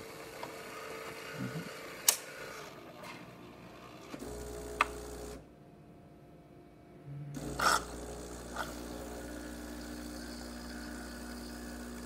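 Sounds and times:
espresso machine mechanical whine: 0.0 - 5.5, 7.4 - 12.0
deeper machine hum: 6.7 - 12.0.

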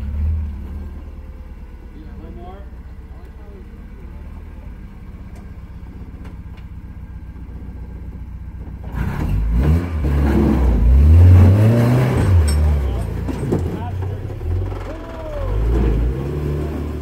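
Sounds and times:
pickup truck engine revving: 8.8 - 17.0.

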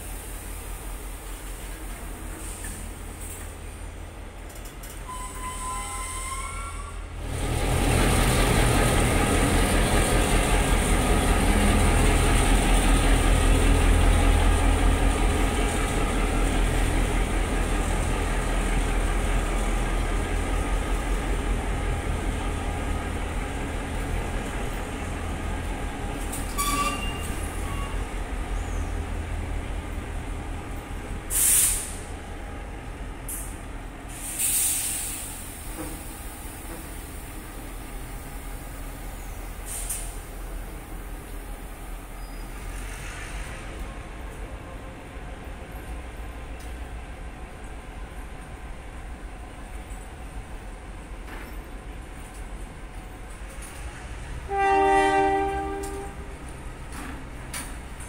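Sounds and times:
diesel locomotive engine drone: 0.0 - 58.0
air brake hiss: 31.3 - 32.1, 34.1 - 35.8, 39.6 - 40.3.

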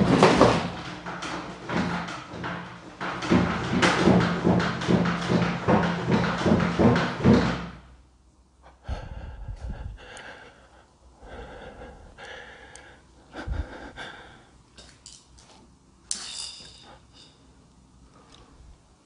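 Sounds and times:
door thumps: 0.0 - 7.8.

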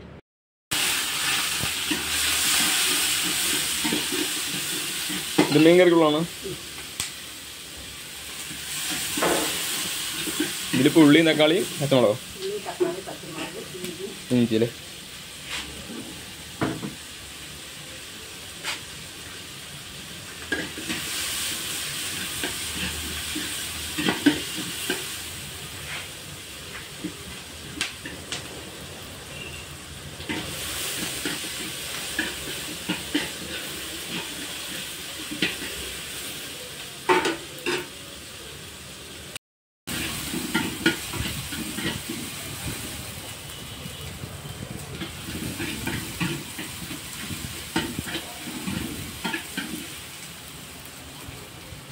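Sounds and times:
vegetables sizzling in a pan: 0.7 - 51.9
metal ladle scraping a pan: 0.8 - 5.6, 8.4 - 11.2, 13.2 - 13.6, 29.3 - 36.0, 39.9 - 42.7, 45.0 - 50.0.

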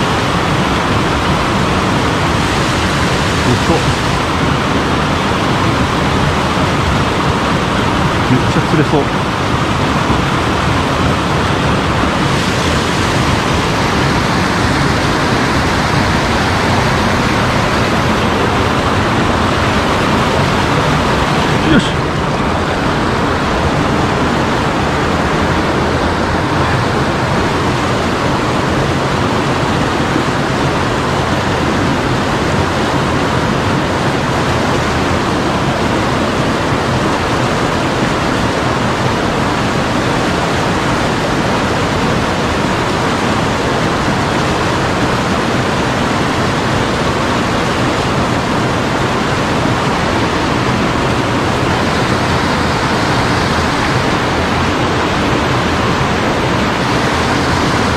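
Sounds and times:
stream water rushing: 0.0 - 57.9.

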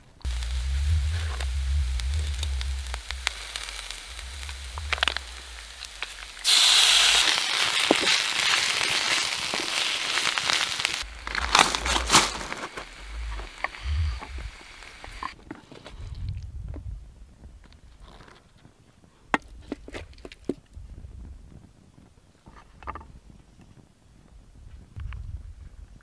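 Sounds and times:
food sizzling in a pan: 0.2 - 15.4.

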